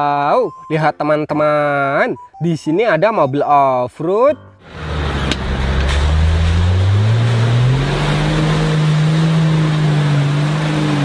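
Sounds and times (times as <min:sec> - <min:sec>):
engine revving under load: 0:04.6 - 0:11.0
tyres throwing mud: 0:04.7 - 0:11.0.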